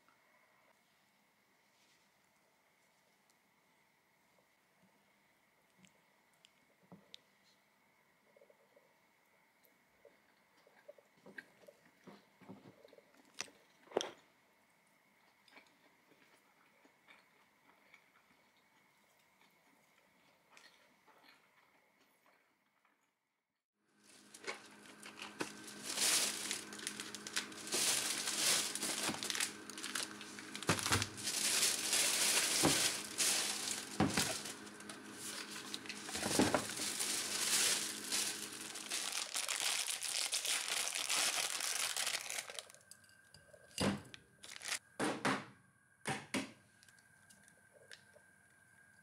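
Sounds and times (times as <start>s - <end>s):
packaging crinkling: 24.1s - 42.8s, 44.4s - 44.8s.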